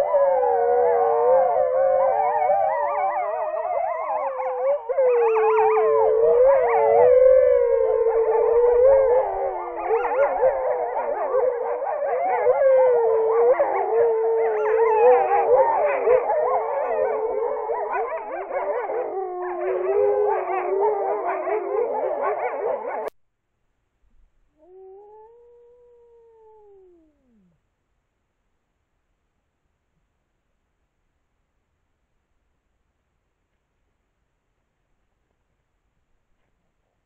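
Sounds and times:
wolves howling in chorus: 0.0 - 23.1.

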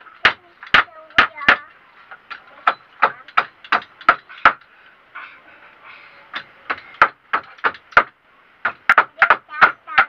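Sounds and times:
hammer striking wooden frame: 0.2 - 4.7, 6.3 - 10.0.

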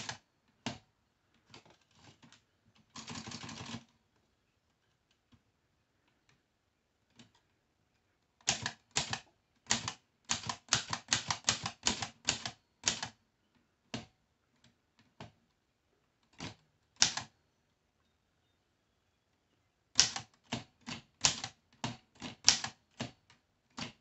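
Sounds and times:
typewriter keys striking: 8.4 - 13.1, 20.0 - 23.2.

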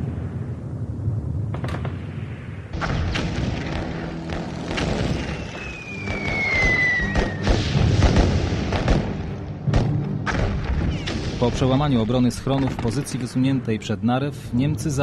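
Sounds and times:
artillery explosions: 0.0 - 13.4
falling whistle: 5.2 - 7.5
gunfire shots: 7.2 - 11.8.

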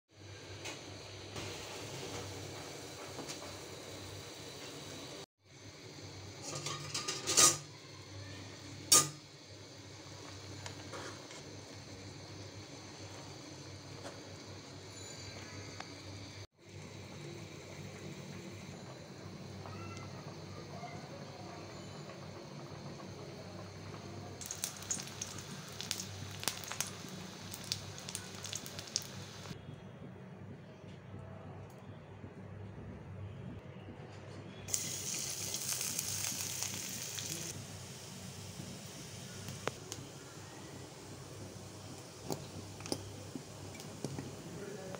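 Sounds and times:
egg sizzling in hot oil: 24.4 - 29.6, 34.7 - 44.5
sharp pops and crackles: 24.4 - 29.6.

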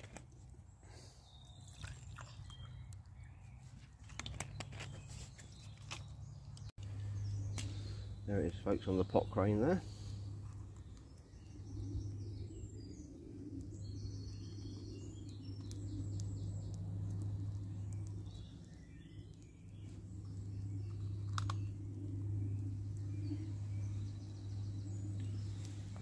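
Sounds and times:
birds chirping: 0.1 - 26.0
low rumble: 9.8 - 26.0.

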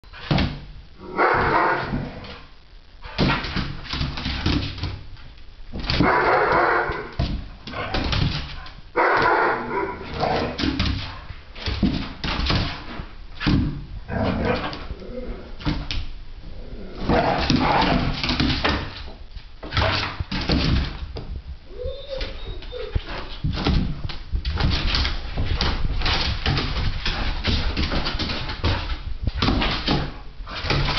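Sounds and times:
dogs barking: 6.0 - 7.1, 9.0 - 10.6
knocks and scuffles: 17.1 - 30.9
dogs whimpering: 21.7 - 23.3.

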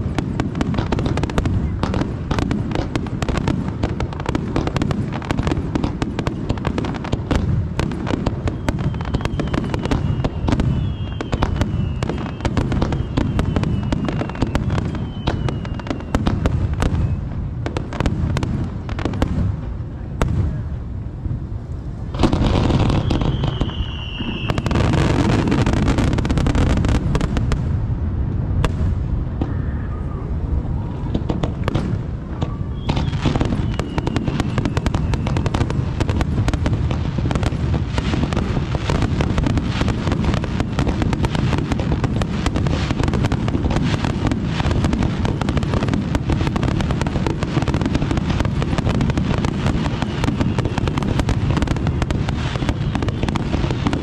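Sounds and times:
falling firework whistles: 0.0 - 19.5, 22.0 - 27.6, 28.6 - 54.0
firework crackling: 0.0 - 54.0.

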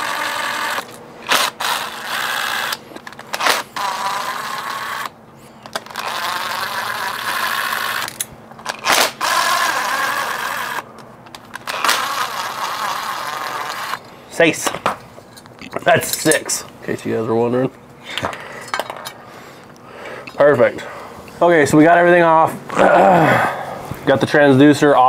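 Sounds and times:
cordless drill whirring: 0.0 - 14.1.

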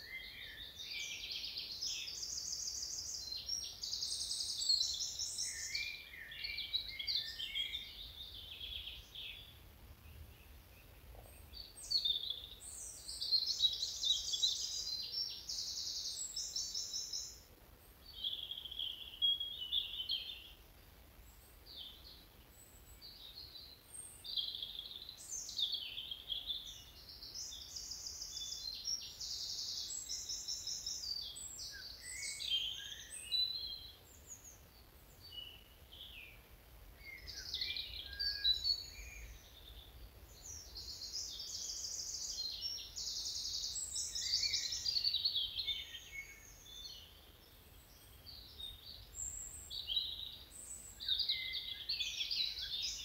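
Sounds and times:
songbirds singing: 0.0 - 53.0.

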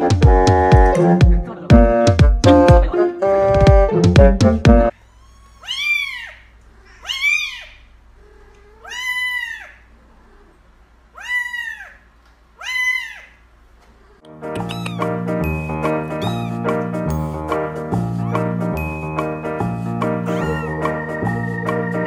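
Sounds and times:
kitten meowing: 5.0 - 9.9, 11.1 - 12.0, 12.6 - 13.4, 14.6 - 15.2, 16.1 - 17.3, 18.2 - 18.6, 20.2 - 21.0.

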